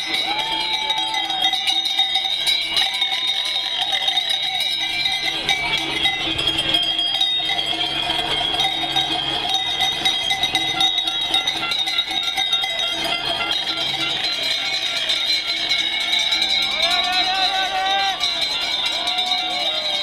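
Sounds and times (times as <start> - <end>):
cowbells clanging: 0.0 - 20.0.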